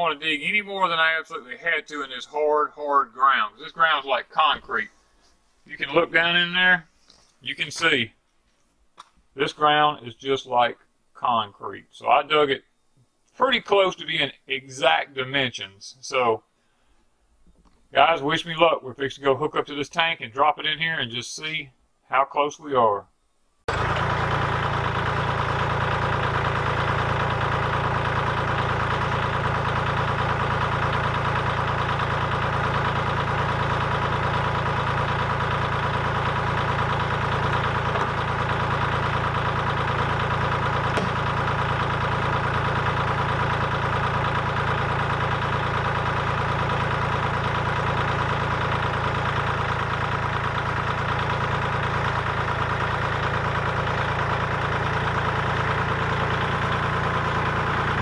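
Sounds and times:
tractor engine idling: 23.7s - 58.0s.

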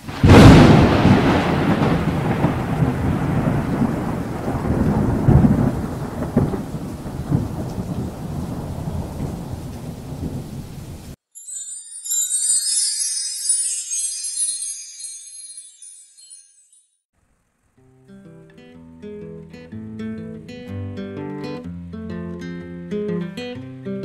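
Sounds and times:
thunder rumble: 0.1s - 11.2s.

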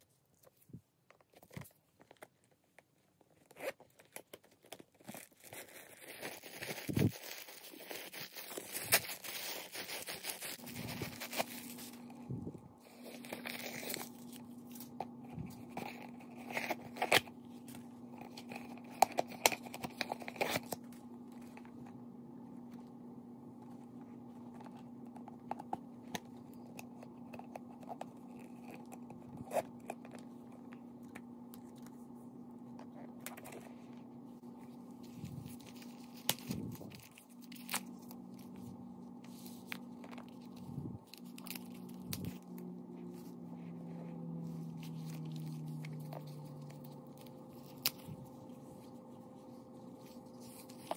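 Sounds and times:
packing paper crinkling and tearing: 1.3s - 21.9s, 34.6s - 43.7s, 44.4s - 50.9s
steady low hum: 5.8s - 50.9s.

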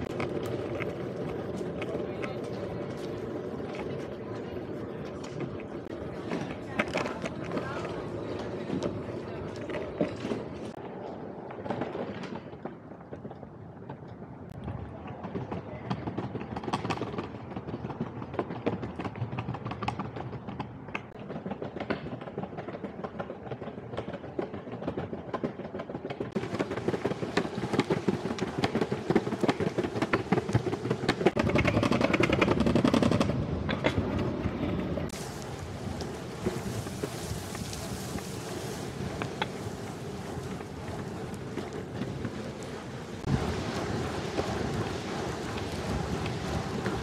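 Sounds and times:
wheels rolling over paving: 0.0s - 47.0s
bright rushing hiss: 35.2s - 47.0s.

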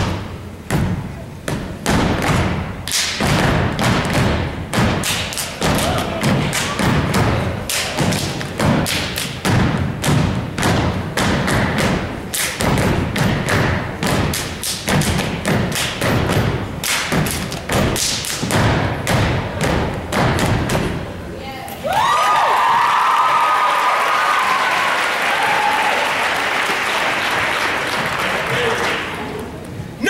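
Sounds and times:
stomps on wooden stage: 0.0s - 21.1s
hand claps and body slaps: 1.9s - 20.9s.

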